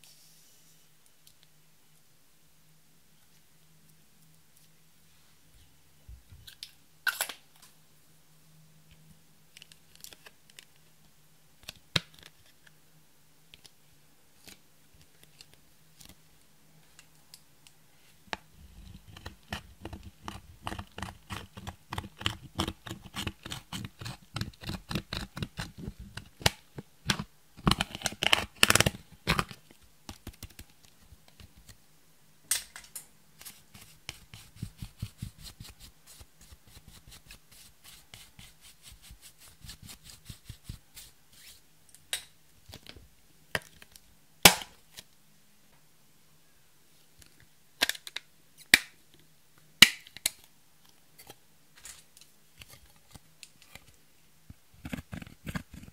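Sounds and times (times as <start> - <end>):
tool clicking and scraping powder: 18.8 - 29.5, 33.4 - 41.1, 54.8 - 55.9.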